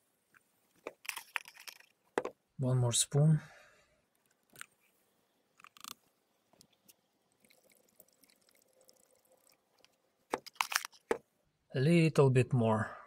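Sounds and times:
light crackle: 5.6s - 11.1s.

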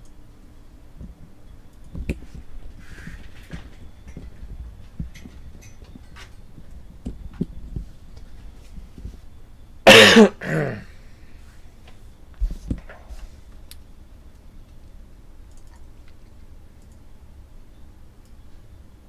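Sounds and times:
man coughing: 9.9s - 10.9s.

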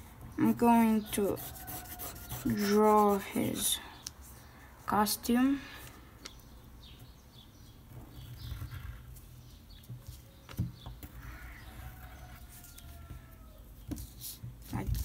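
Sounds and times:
pencil scratching on paper: 0.6s - 3.7s.

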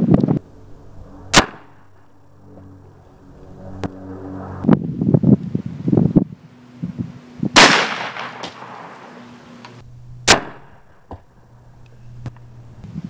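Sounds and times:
sharp gunshot report: 1.3s - 1.8s, 7.6s - 9.2s, 10.2s - 10.8s
shotgun blast with echo: 7.6s - 9.1s, 10.2s - 10.7s.

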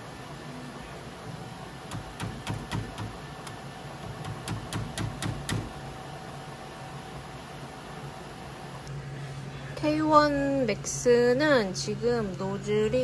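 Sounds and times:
low hum with faint whine: 0.0s - 13.0s
screwdriver clicks and knocks: 1.9s - 3.2s, 4.0s - 5.7s.

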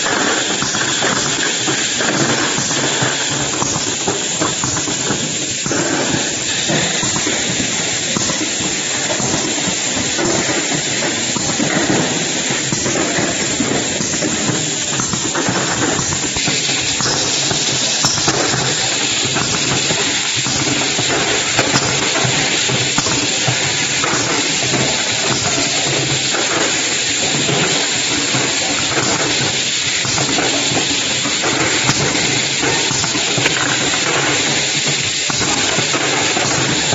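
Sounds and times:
bottling line machinery running: 0.0s - 36.9s.

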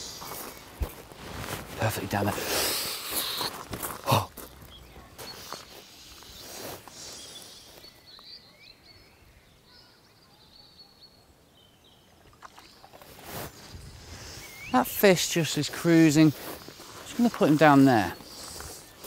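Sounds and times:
faint bird chirps: 4.4s - 15.0s.

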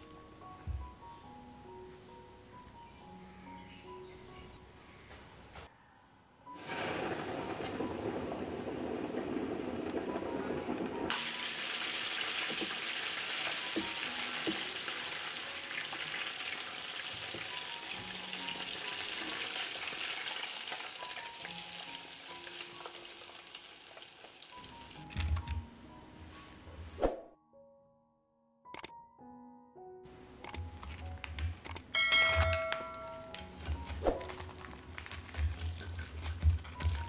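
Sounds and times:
chicken deep-frying in oil: 6.6s - 25.2s, 34.0s - 37.0s.

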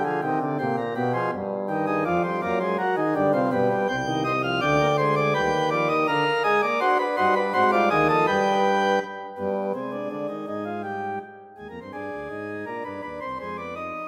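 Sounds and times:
organ playing: 0.0s - 14.0s.

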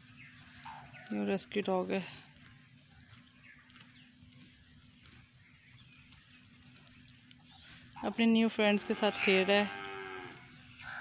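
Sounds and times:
distant bird chirps: 0.0s - 11.0s.

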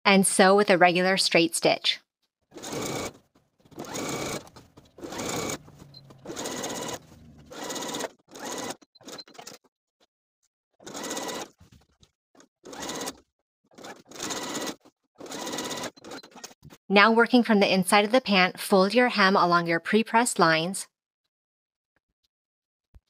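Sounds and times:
sewing machine running: 2.5s - 9.6s, 10.8s - 11.6s, 12.6s - 13.2s, 13.8s - 16.3s.

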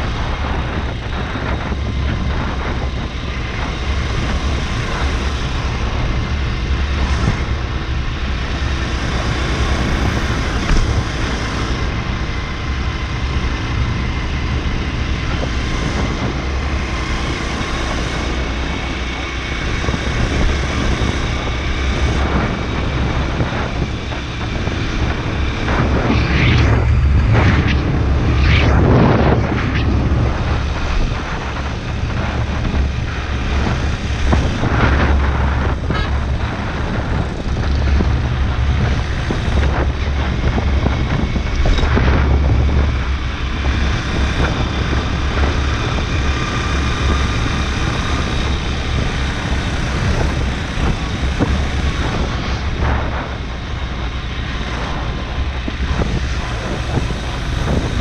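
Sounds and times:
motorbike engine and road rumble: 0.0s - 58.0s
wind buffeting microphone: 0.0s - 58.0s.

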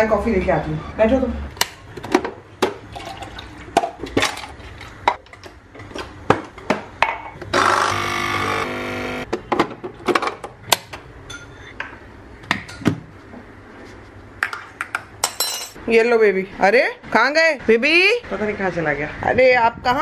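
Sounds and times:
coffee machine pump buzzing: 7.4s - 9.3s.

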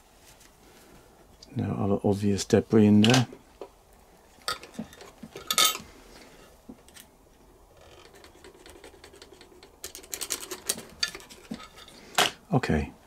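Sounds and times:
light metal clicks and scratches: 4.4s - 5.9s, 7.7s - 12.4s
steel part clinking on wood: 4.5s - 5.8s, 9.8s - 12.3s.

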